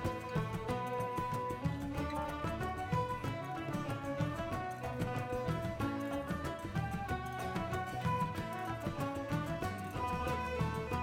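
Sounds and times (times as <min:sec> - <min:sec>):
folk music over steady beat: 0:00.0 - 0:11.0.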